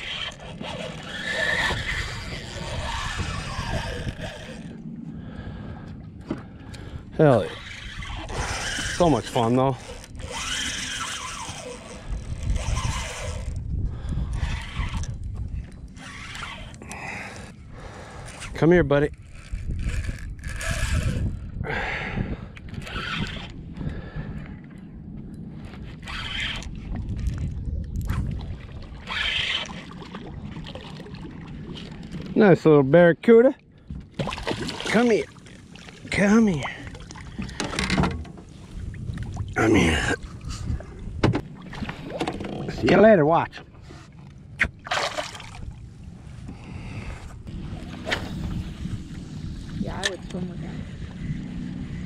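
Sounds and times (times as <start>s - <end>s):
wind rumbling on microphone: 0.0s - 32.7s, 33.8s - 52.0s.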